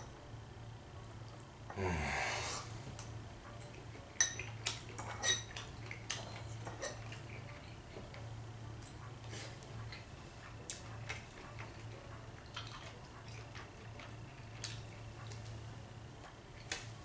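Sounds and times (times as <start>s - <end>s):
fork clinking on plate: 4.2s - 5.6s.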